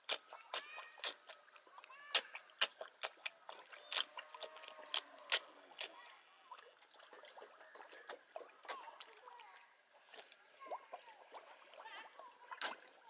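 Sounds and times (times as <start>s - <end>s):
water drops plopping: 6.5s - 13.0s.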